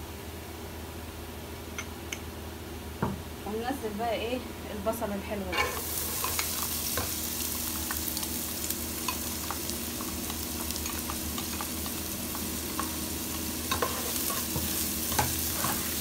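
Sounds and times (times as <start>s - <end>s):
onion sizzling in hot oil: 5.5s - 16.0s
spatula stirring: 9.1s - 16.0s.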